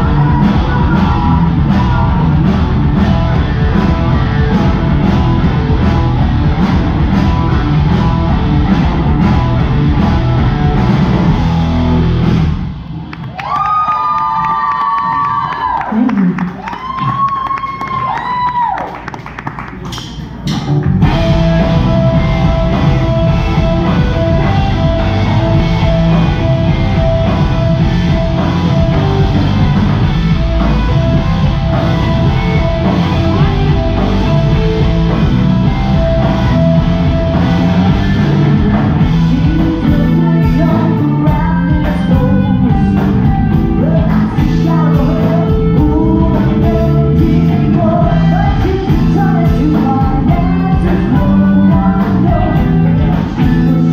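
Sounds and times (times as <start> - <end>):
person singing: 0.0 - 2.7, 38.1 - 53.9
choppy drumming: 0.0 - 12.6, 14.4 - 53.9
live rock band: 0.0 - 19.1, 19.7 - 53.9.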